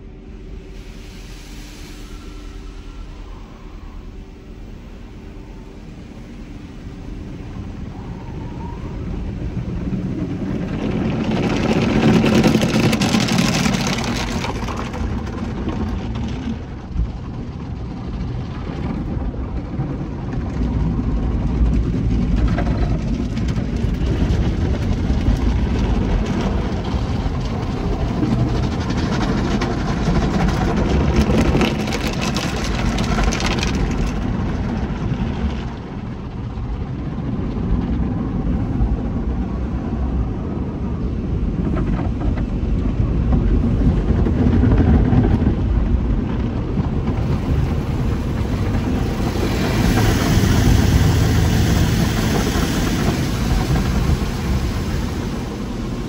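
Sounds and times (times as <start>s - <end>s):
car wash spray and brushes: 46.1s - 56.0s.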